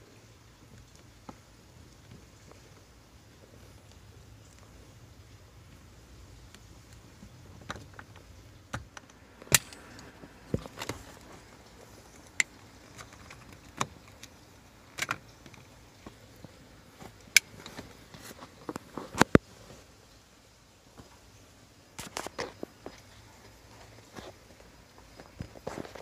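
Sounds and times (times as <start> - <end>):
plastic and metal clicks: 12.1 - 15.7.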